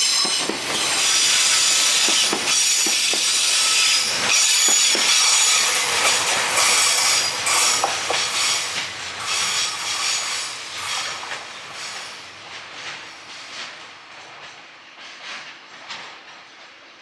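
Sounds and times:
high wheel squeal: 0.0 - 12.2
train rolling past: 0.0 - 17.0
wheels clacking over rail joints: 0.0 - 17.0.

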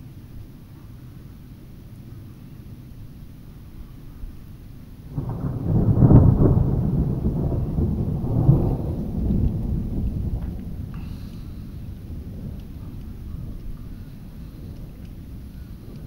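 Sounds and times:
thunder rumbling: 4.9 - 16.0.

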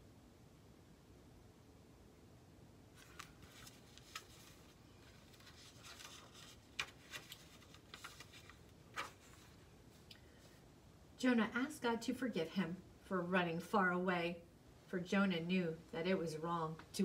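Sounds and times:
paper pages rustling: 2.9 - 10.1.

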